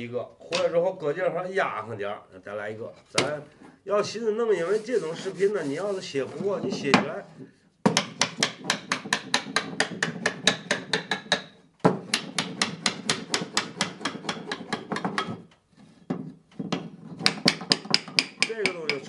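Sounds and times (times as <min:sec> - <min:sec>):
small hammer tapping on wood: 0:07.8 - 0:19.0.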